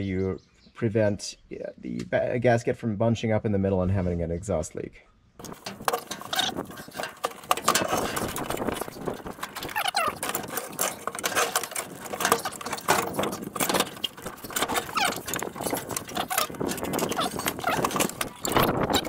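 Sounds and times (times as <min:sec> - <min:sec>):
metallic clinks and scrapes: 0:05.4 - 0:19.0.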